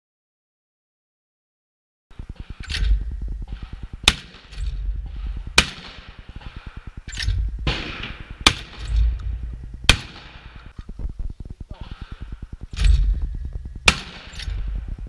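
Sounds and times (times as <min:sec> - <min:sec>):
shotgun shots: 0:02.1 - 0:10.9, 0:13.8 - 0:14.9
low rumble: 0:02.1 - 0:15.0.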